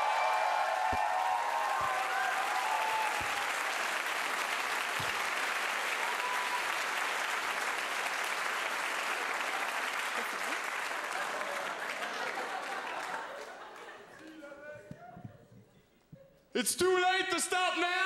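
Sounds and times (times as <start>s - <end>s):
voices cheering: 0.0s - 4.0s, 5.8s - 7.0s
audience applauding: 0.0s - 14.5s.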